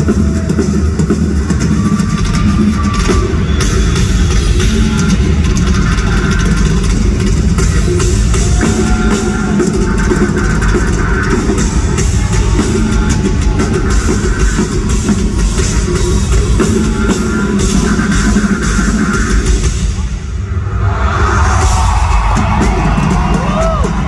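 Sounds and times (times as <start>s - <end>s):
live heavy metal band: 0.0s - 24.0s
pounding drum kit: 0.0s - 24.0s
distorted guitar: 1.4s - 20.3s.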